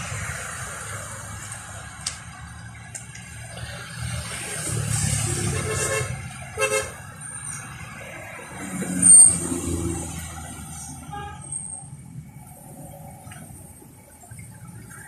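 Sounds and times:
road traffic rumbling: 0.0s - 15.0s
vehicle horn toot: 5.5s - 7.0s, 11.0s - 11.5s.

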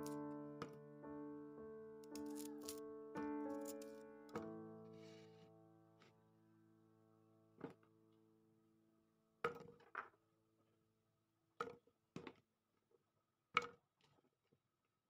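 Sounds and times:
soft guitar and piano tune: 0.0s - 6.2s.

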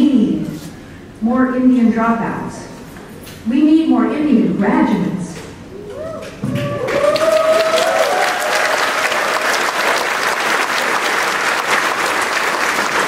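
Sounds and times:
crowd whooping: 5.8s - 11.1s
audience applauding: 6.4s - 13.0s.

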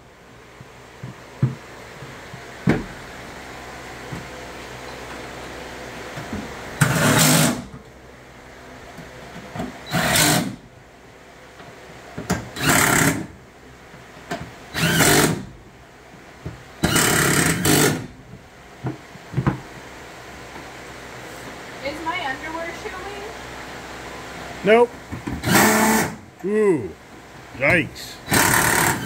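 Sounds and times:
cordless drill running: 28.3s - 29.0s.

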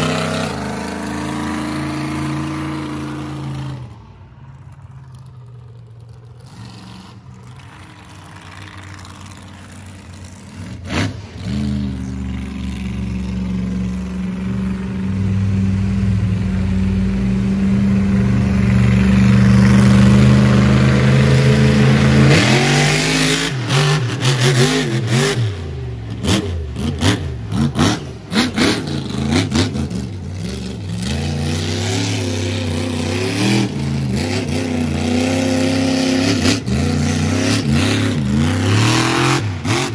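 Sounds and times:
monster truck engine revving: 0.0s - 4.1s, 5.2s - 39.9s.

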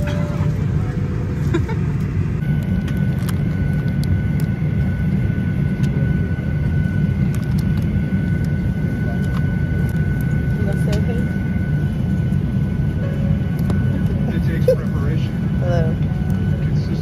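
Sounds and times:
faint high whine: 0.0s - 7.1s
airliner cabin rumble: 0.0s - 17.0s.

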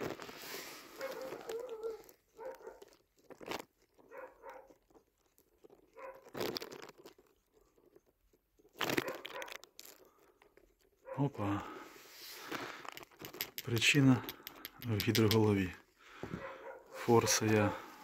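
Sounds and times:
short crunching bursts: 0.0s - 7.7s, 8.6s - 10.4s
socket clicking and scraping on screws: 12.8s - 15.6s.

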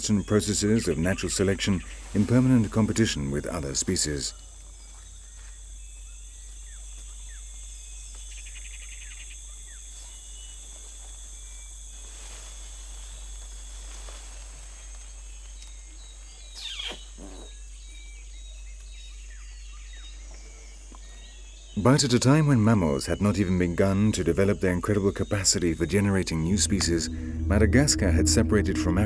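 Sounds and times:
rapid bird trill: 0.0s - 10.6s, 14.8s - 28.9s
high insect drone: 0.0s - 29.0s
bird call sweeping down: 16.6s - 17.5s.

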